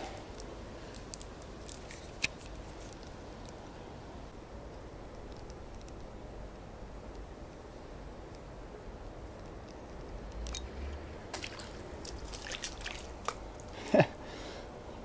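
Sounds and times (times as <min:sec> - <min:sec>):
fish splashing at water surface: 0:11.3 - 0:13.7.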